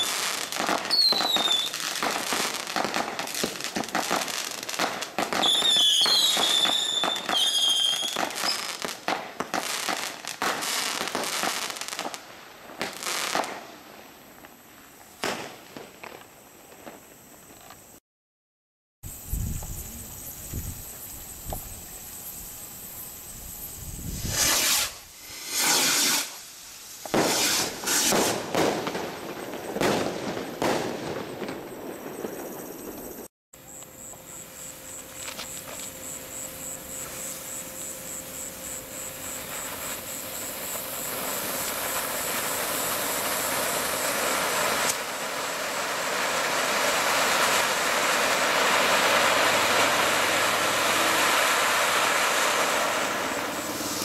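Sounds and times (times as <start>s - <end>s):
loud firework bursts: 0.0s - 17.1s, 19.1s - 33.3s, 34.0s - 54.0s
ground fountains hissing: 33.6s - 54.0s.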